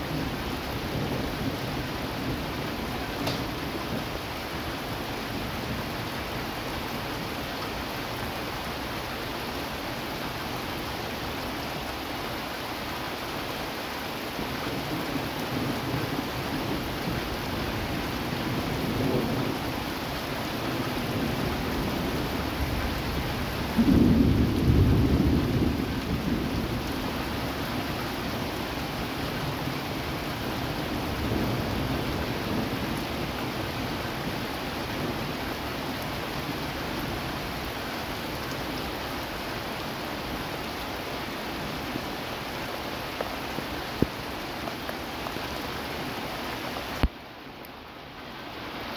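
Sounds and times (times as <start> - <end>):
steady rain: 0.0 - 48.9
rolling thunder: 20.7 - 27.1.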